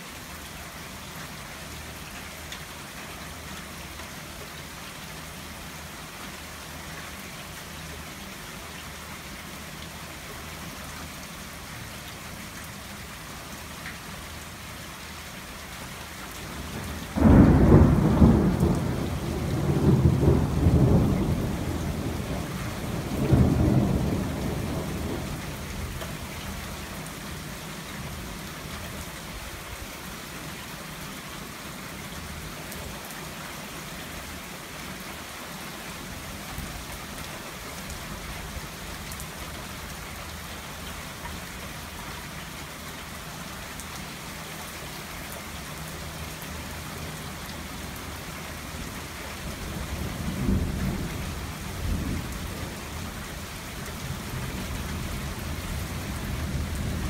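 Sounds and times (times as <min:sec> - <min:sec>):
steady rain: 0:00.0 - 0:57.0
thunder clap and rumble: 0:17.2 - 0:25.4, 0:49.9 - 0:52.6.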